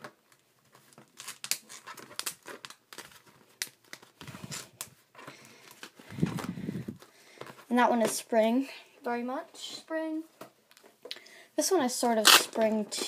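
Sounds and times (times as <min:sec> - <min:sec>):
tape crinkling and crackling: 0:00.0 - 0:07.8.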